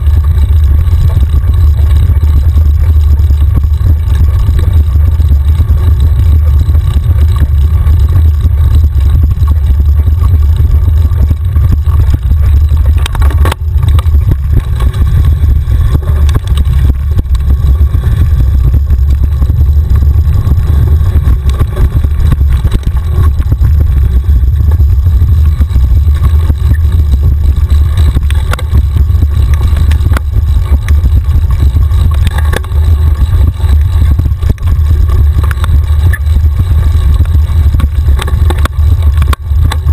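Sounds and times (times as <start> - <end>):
bike clicks and rattles: 0.0 - 39.9
wind buffeting microphone: 0.0 - 39.9.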